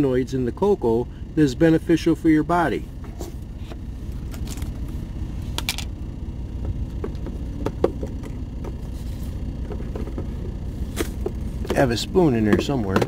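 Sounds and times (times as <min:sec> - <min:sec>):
idling truck engine rumble: 0:00.0 - 0:13.0
jars knocking and rattling in bin: 0:06.6 - 0:08.8, 0:09.6 - 0:13.0.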